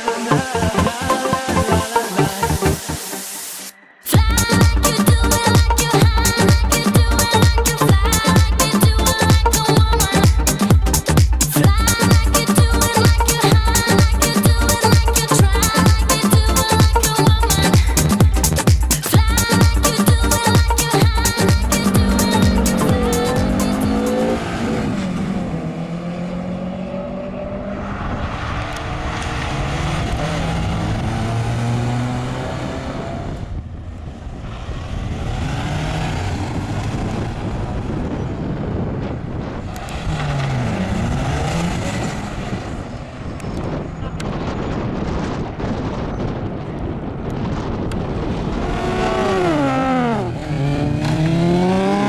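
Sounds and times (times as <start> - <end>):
car engines revving and accelerating: 19.3 - 52.0.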